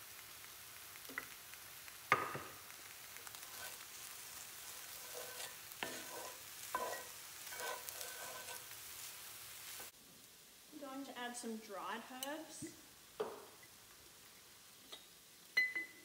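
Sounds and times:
filling sizzling in a frying pan: 0.0 - 16.0
utensil knocking and scraping pan: 4.8 - 8.7.

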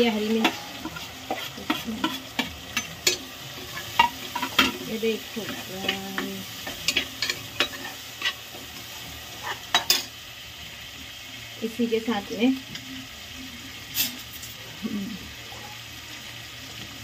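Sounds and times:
food sizzling in oil: 0.0 - 17.0
spoon scraping metal pot: 0.2 - 4.7.

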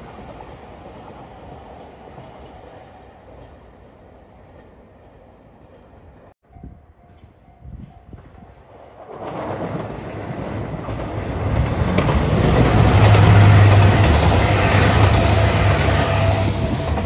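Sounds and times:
diesel train engines droning: 10.5 - 17.0.

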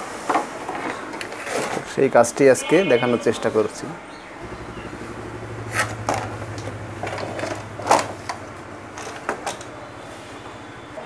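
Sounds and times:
steady low hum: 4.4 - 11.0.

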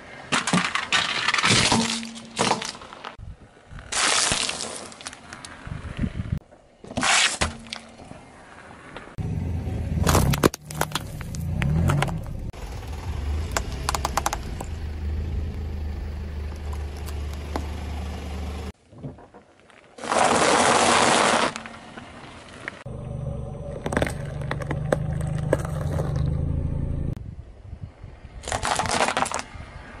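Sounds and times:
tyre crushing small objects: 3.9 - 5.6, 10.0 - 12.4, 23.7 - 26.4, 28.4 - 29.5
car engine running low: 9.2 - 18.8, 22.9 - 27.2.

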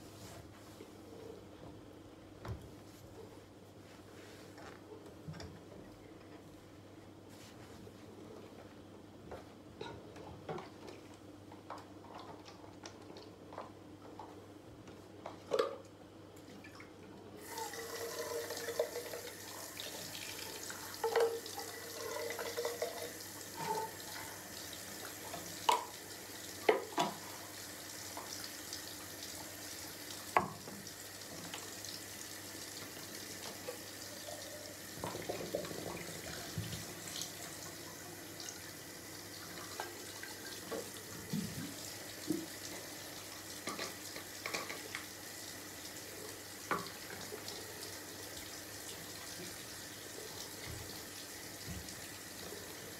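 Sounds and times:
faucet running into sink: 17.4 - 32.2.

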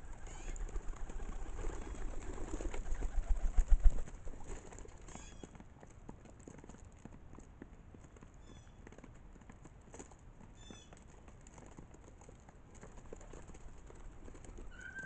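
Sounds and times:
pigeon wings flapping: 0.0 - 5.5, 11.2 - 15.0
pigeons pecking on plastic table: 0.0 - 15.0.

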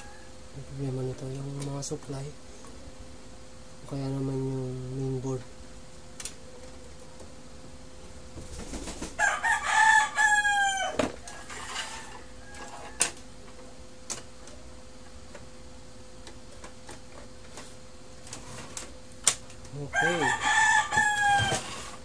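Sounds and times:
rooster crowing: 0.0 - 0.6, 9.2 - 13.4, 19.8 - 22.0
faint steady hum: 0.0 - 22.0.

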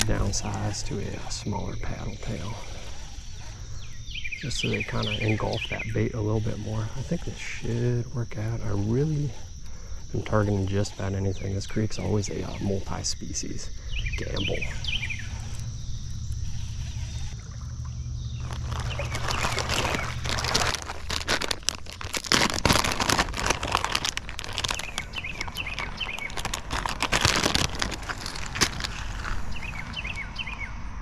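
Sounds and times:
birds chirping: 0.0 - 31.0
low steady rumble: 13.7 - 31.0.

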